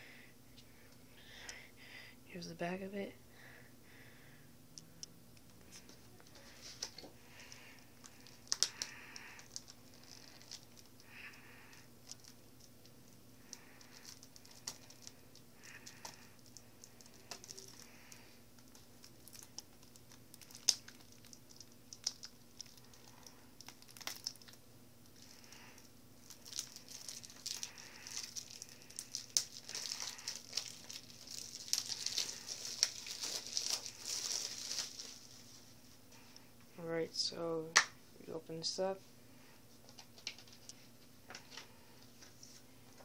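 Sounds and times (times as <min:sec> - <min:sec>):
faint steady hum: 0:00.0 - 0:43.0
plastic wrapping crinkling and tearing: 0:05.7 - 0:35.8.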